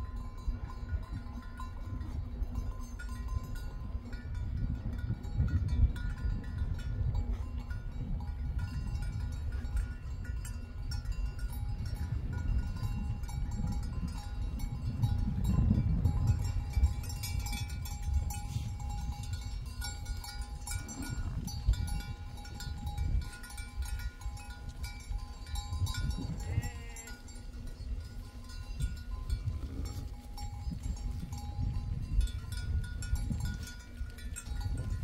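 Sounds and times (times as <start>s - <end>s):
animal bell ringing: 0.0s - 35.0s
sheep bleating: 26.3s - 27.2s.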